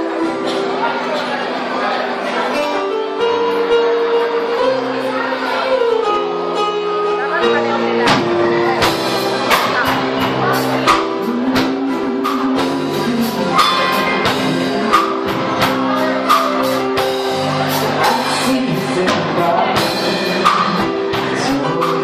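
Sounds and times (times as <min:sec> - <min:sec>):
keyboards: 0:00.0 - 0:22.0
steady drum beat: 0:07.4 - 0:22.0
man singing: 0:10.9 - 0:16.0, 0:17.9 - 0:22.0.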